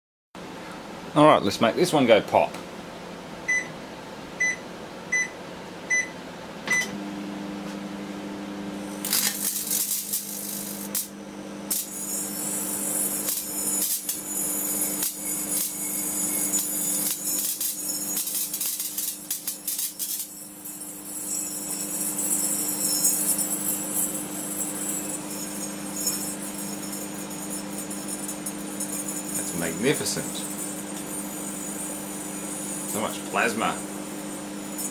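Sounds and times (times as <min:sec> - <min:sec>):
microwave oven humming: 0:00.4 - 0:34.9
microwave keypad beeping: 0:03.5 - 0:03.7, 0:04.4 - 0:06.9
plasma crackling in headlight: 0:09.0 - 0:11.1.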